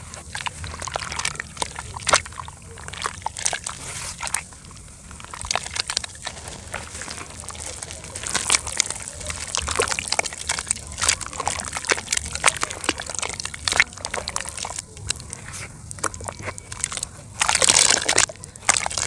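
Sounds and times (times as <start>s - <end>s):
hands squelching wet dirt: 0.0s - 19.0s
water swishing in bucket: 0.0s - 19.0s.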